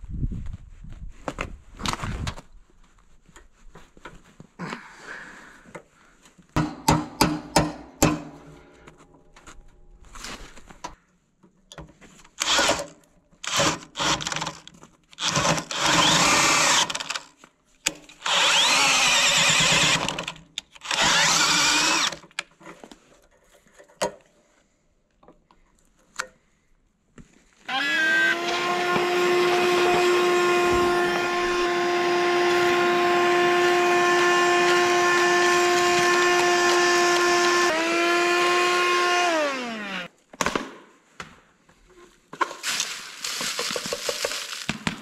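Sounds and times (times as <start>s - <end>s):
sharp metal knocks: 6.6s - 8.6s
cordless drill boring into steel: 12.4s - 14.6s, 15.2s - 17.3s, 18.2s - 22.2s, 27.7s - 40.1s.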